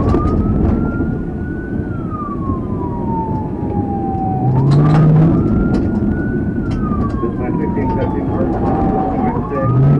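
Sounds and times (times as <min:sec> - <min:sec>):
police siren wailing: 0:00.0 - 0:09.9
car rumbling over dirt: 0:04.4 - 0:09.9.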